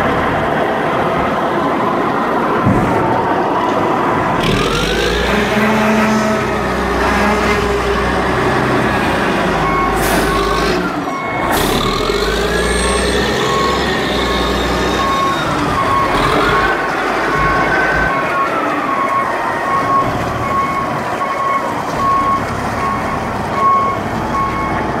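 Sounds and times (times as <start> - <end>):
heavy diesel machinery rumbling: 0.0 - 25.0
reversing beeper: 4.4 - 24.8.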